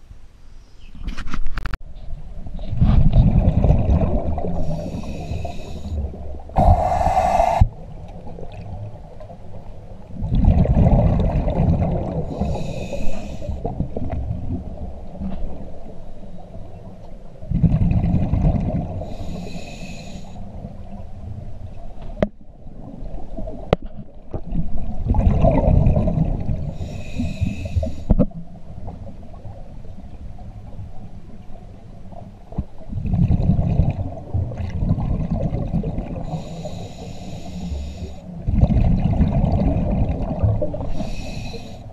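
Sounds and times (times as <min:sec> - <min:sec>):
underwater bubbles gushing: 0:02.8 - 0:15.8, 0:17.4 - 0:19.4, 0:22.6 - 0:31.6, 0:32.2 - 0:36.8, 0:38.4 - 0:41.7
regulator hiss: 0:04.6 - 0:06.0, 0:06.6 - 0:07.8, 0:12.3 - 0:13.6, 0:19.1 - 0:20.5, 0:26.8 - 0:28.1, 0:36.3 - 0:38.3, 0:40.9 - 0:41.9.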